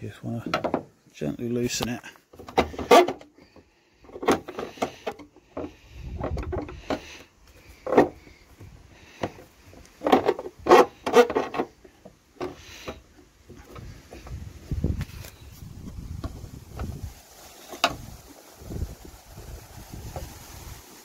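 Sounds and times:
plastic creaking and knocking: 0.4 - 1.0, 2.3 - 17.0, 17.7 - 18.1.

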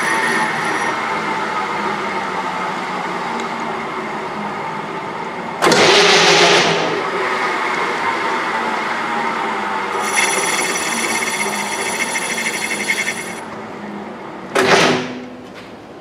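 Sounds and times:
metal lathe cutting: 0.0 - 1.0, 10.0 - 13.4
high ringing whine: 9.9 - 13.5.

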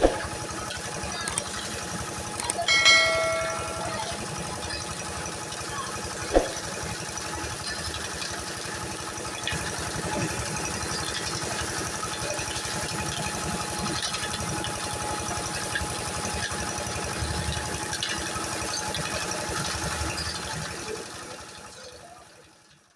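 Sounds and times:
concrete mixer engine rattling: 0.0 - 22.9
sharp knock: 6.4 - 6.7.

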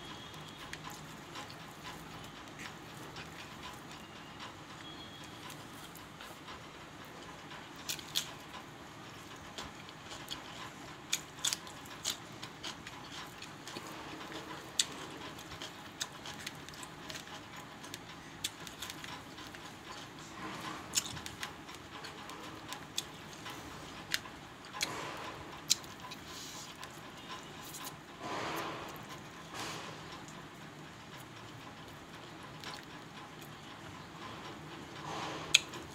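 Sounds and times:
chewing and lip smacking: 31.8 - 33.5.

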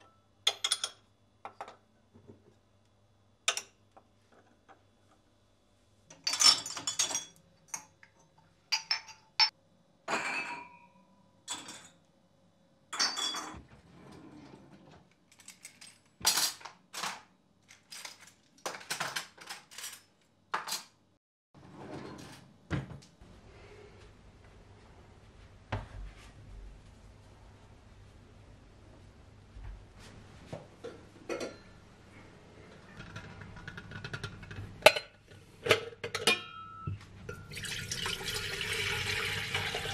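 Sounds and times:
dishes and cutlery clinking: 8.7 - 10.9, 30.8 - 31.8, 32.9 - 37.5.

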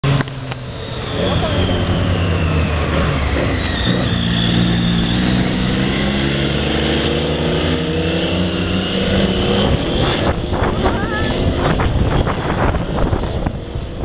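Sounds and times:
motorcycle engines running: 0.0 - 14.0.

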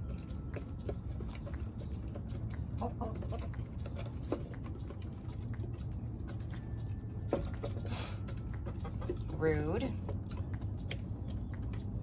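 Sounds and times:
beaks pecking on wood: 0.0 - 12.0.

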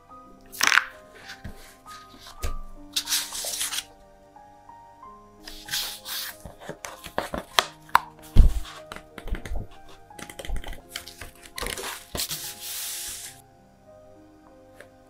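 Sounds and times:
soft background music: 0.0 - 15.0
hands rubbing pages flat: 0.6 - 3.9, 5.4 - 13.4
sketchbook pages turning: 0.6 - 3.9, 5.4 - 13.4.

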